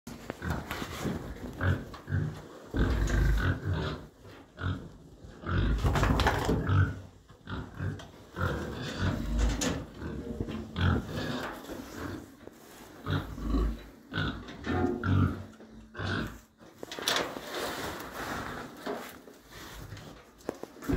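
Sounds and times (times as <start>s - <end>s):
pig grunting: 0.4s - 16.8s.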